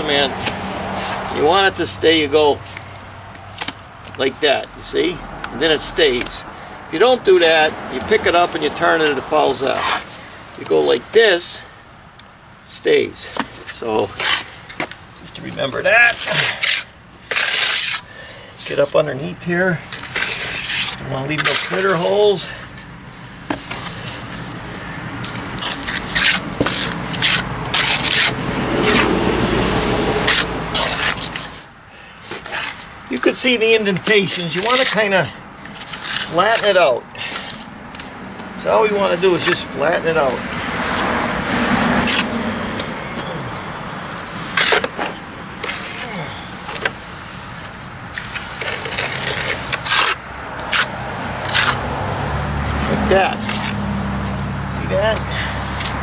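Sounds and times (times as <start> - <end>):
trowel scraping wet plaster: 13.2 - 19.0, 20.0 - 22.7, 25.2 - 29.3, 30.2 - 38.1, 38.9 - 41.1, 42.0 - 42.4, 44.2 - 45.0, 45.6 - 51.9, 53.2 - 54.4
float scraping over plaster: 34.0 - 37.6.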